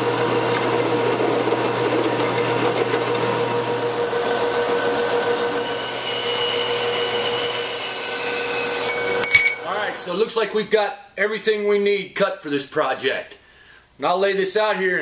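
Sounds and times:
drill press drilling steel: 0:00.0 - 0:10.1
metal-cutting band saw: 0:00.0 - 0:10.2
thin high whining tones: 0:08.7 - 0:10.0.

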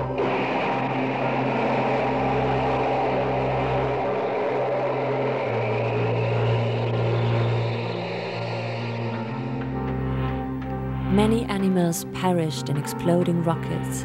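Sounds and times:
rocket engine exhaust roar: 0:00.0 - 0:10.6.

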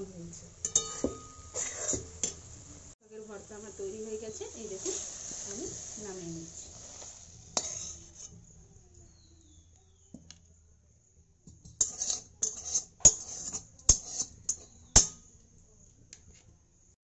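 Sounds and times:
metal spatula scraping a metal pan: 0:00.6 - 0:02.4, 0:04.7 - 0:09.2, 0:11.6 - 0:15.3
spatula scraping and clinking on a plate: 0:00.6 - 0:02.4, 0:06.6 - 0:09.2, 0:11.5 - 0:15.4.

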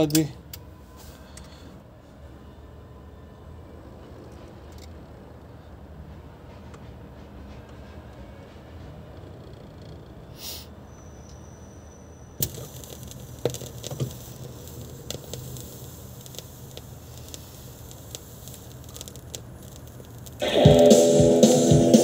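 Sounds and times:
record surface hiss and crackle: 0:12.4 - 0:22.0.

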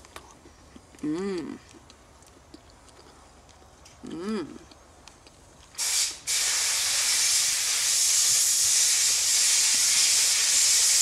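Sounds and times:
food sizzling on camp stove: 0:05.8 - 0:11.0.

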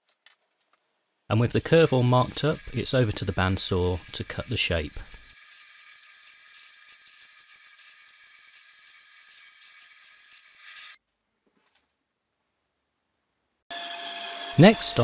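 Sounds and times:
bandsaw cutting wood: 0:01.6 - 0:10.8.

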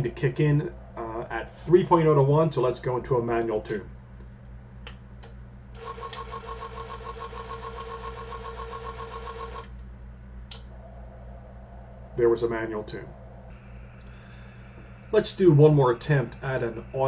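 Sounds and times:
steady tone: 0:00.0 - 0:03.6, 0:09.8 - 0:17.0.

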